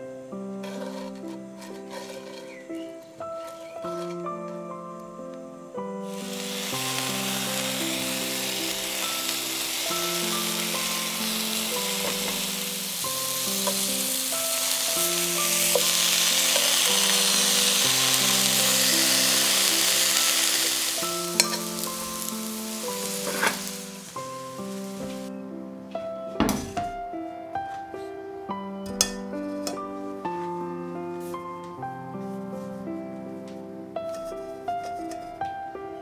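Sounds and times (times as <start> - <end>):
background music sustained notes: 0.0 - 36.0
food sizzling in hot oil: 6.0 - 25.3.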